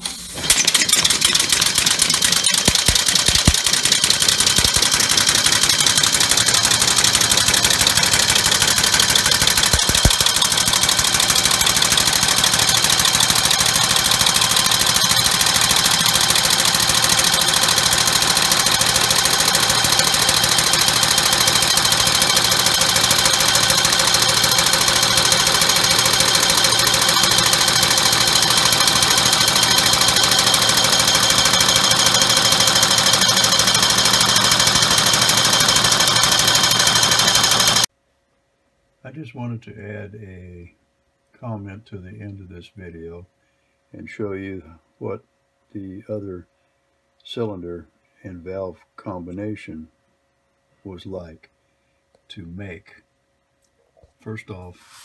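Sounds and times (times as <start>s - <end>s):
compressed-air engine pulsing: 0.4s - 37.9s.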